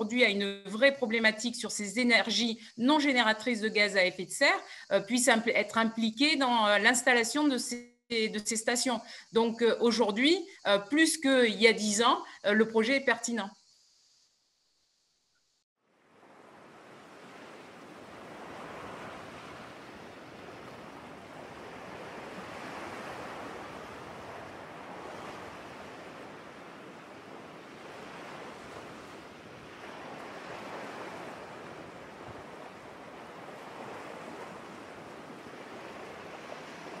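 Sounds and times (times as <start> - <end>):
sea surf waves rushing: 16.0 - 37.0.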